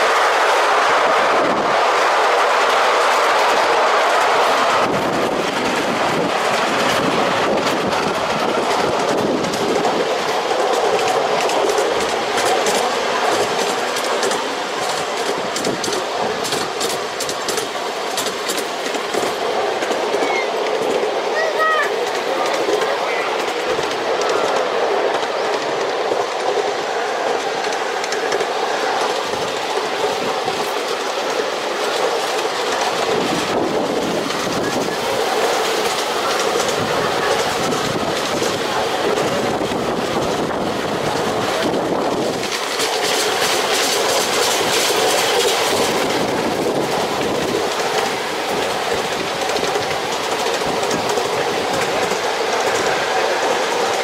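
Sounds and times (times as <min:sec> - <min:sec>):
train wheels running on rails: 0:00.0 - 0:54.0
clicks over rail joints: 0:06.5 - 0:21.1.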